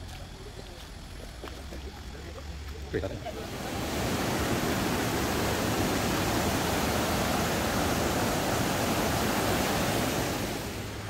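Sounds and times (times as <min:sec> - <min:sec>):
river water rushing over rocks: 0:03.3 - 0:11.0.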